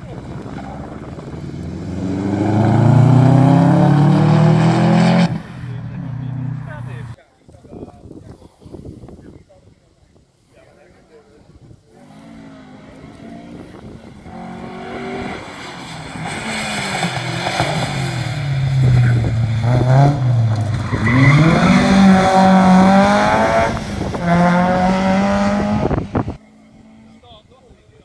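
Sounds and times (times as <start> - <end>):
rally car engine accelerating: 0.0 - 6.8, 12.1 - 27.2.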